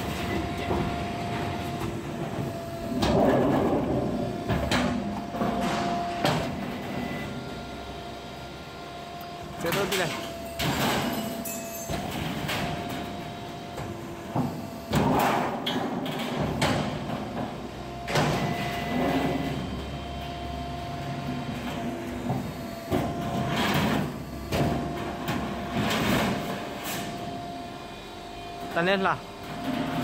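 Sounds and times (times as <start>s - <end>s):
machine humming: 0.0s - 15.2s.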